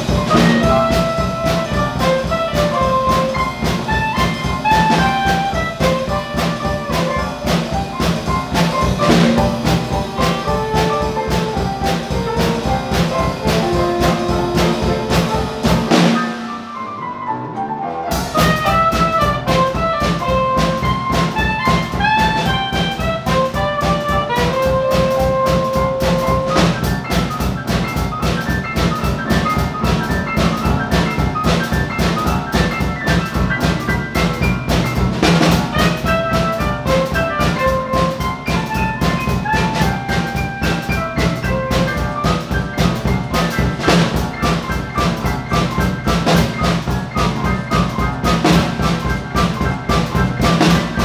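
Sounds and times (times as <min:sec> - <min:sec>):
drum kit: 0:00.0 - 0:51.0
upright piano: 0:00.0 - 0:51.0
soprano saxophone: 0:04.0 - 0:06.8, 0:17.0 - 0:25.5.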